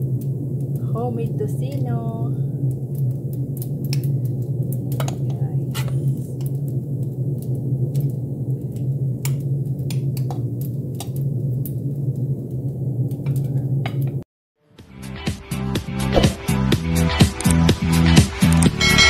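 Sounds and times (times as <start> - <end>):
steady low hum: 0.0 - 14.1.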